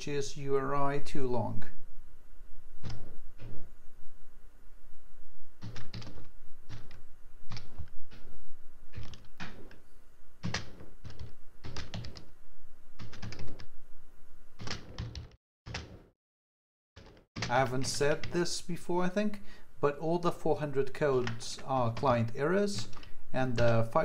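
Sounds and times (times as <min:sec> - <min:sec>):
typing on computer keyboard: 0:05.6 - 0:07.9, 0:10.4 - 0:12.3, 0:13.0 - 0:13.7, 0:14.6 - 0:15.8.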